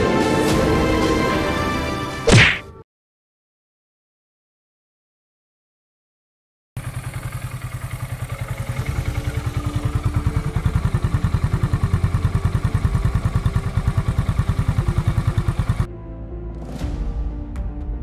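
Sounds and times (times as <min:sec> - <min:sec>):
motorcycle engine putter: 0:06.8 - 0:15.9.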